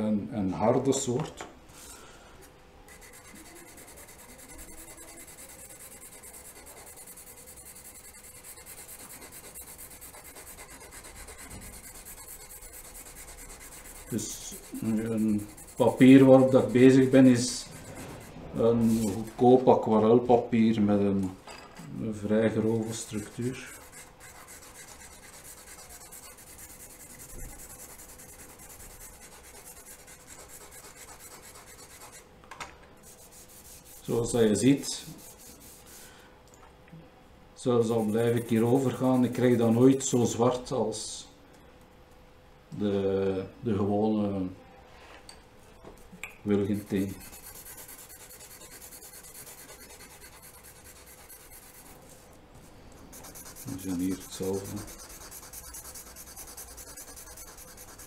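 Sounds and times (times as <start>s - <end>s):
charcoal scratching on paper: 2.9s - 19.4s, 22.8s - 32.2s, 33.0s - 34.2s, 35.0s - 36.1s, 37.8s - 40.1s, 46.6s - 52.2s, 53.1s - 58.0s.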